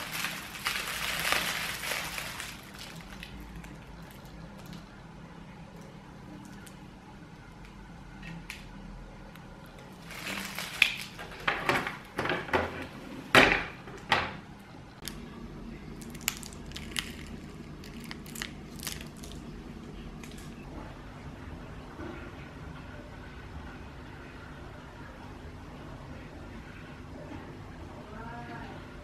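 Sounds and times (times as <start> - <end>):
plastic bags crinkling: 0.0 - 5.0, 9.8 - 12.4, 16.0 - 20.5.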